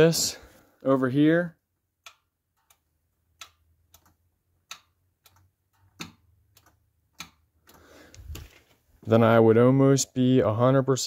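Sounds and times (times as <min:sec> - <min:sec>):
solenoid clicking: 0:02.0 - 0:08.4.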